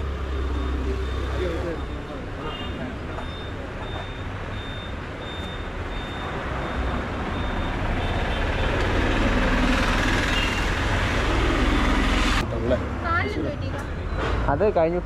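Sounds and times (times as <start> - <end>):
street traffic: 0.0 - 15.0
high electronic beep: 0.2 - 8.4
motor vehicle passing: 6.5 - 13.3.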